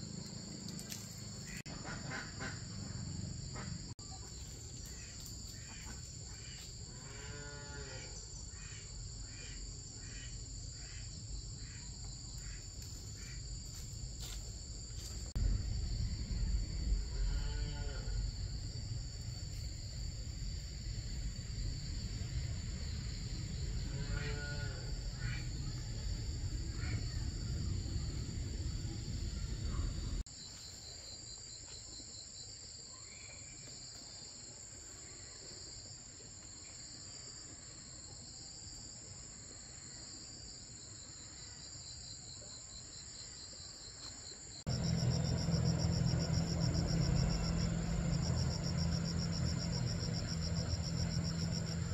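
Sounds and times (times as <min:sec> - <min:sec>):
insects chirping: 0:00.0 - 0:51.9
low rumble: 0:15.0 - 0:23.9, 0:25.0 - 0:30.2.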